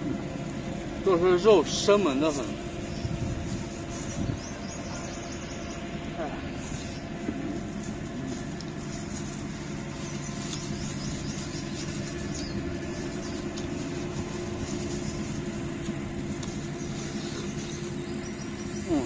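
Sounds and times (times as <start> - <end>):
low mechanical hum: 0.0 - 19.0
plastic gloves and bag crinkling: 6.6 - 17.3.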